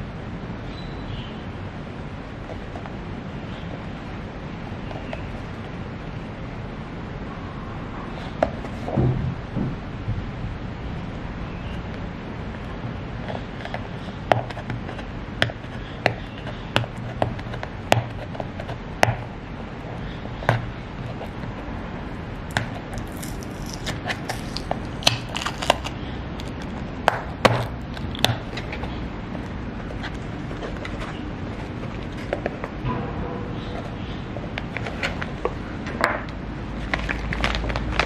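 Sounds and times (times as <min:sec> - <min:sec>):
steady low hum: 0:00.0 - 0:38.0
cardboard crackling: 0:22.5 - 0:26.8, 0:36.8 - 0:38.0.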